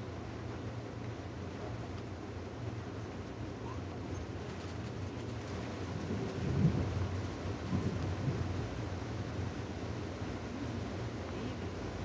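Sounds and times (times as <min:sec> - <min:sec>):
train carriage rumble and hiss: 0:00.0 - 0:12.0.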